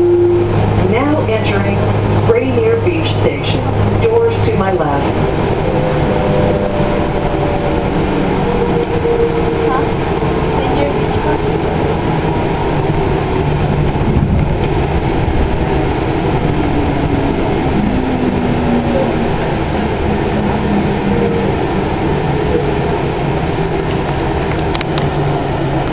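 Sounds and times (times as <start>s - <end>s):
faint hum tones: 0.0s - 12.0s
wheels rumbling on rail: 0.0s - 25.9s.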